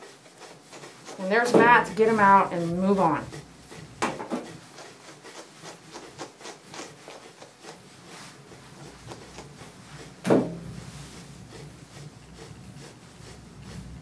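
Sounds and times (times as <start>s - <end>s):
brush scratching through dog fur: 0.0s - 14.0s
loud knock: 10.2s - 10.7s.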